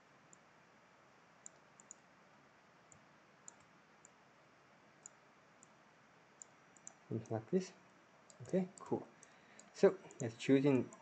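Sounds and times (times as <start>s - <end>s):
low room hiss: 0.0s - 11.0s
computer mouse clicks: 1.4s - 2.1s, 2.9s - 4.2s, 5.0s - 5.8s, 6.4s - 7.4s, 8.2s - 11.0s.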